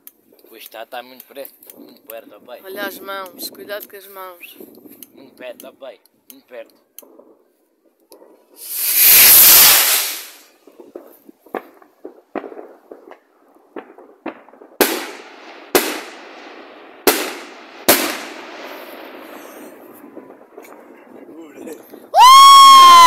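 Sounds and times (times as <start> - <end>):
fireworks cracks and bangs: 7.0 - 23.0
fireworks rushing burst: 8.4 - 23.0.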